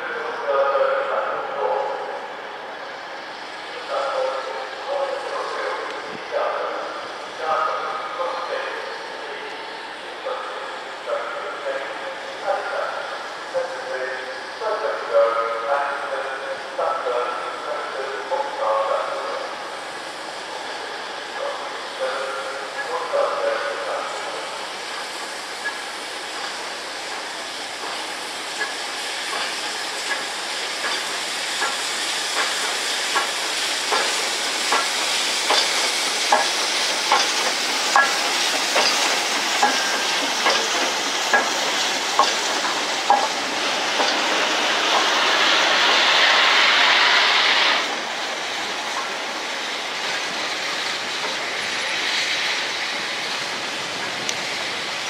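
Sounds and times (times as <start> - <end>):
steam locomotive hissing: 0.0 - 55.0
train wheels clicking over rail joints: 24.8 - 55.0.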